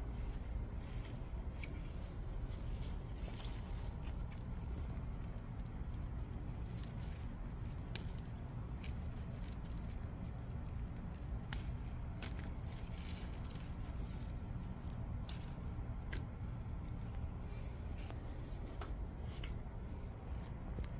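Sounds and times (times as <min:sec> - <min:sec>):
low rumble of air on microphone: 0:00.0 - 0:20.9
rustling plant vines: 0:00.0 - 0:20.9.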